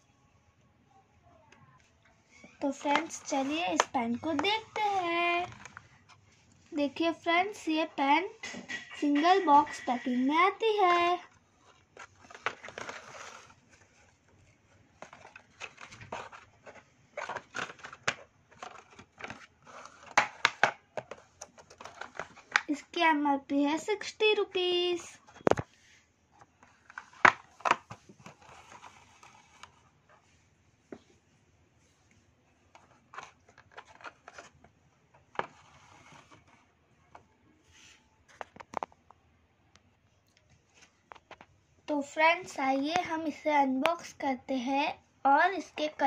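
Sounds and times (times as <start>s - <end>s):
box crinkling and rustling: 11.8s - 14.1s, 15.0s - 22.7s, 32.8s - 34.6s.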